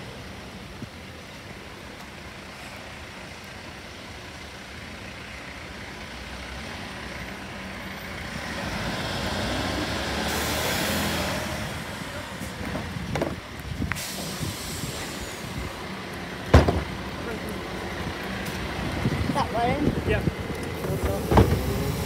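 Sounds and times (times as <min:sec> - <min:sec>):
air brakes hissing: 0:13.9 - 0:15.7.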